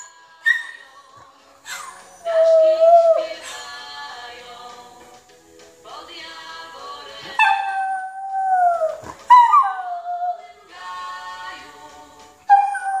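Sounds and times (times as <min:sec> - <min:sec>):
music: 0:00.0 - 0:13.0
dog howling: 0:01.7 - 0:03.7, 0:07.4 - 0:10.4, 0:12.5 - 0:13.0.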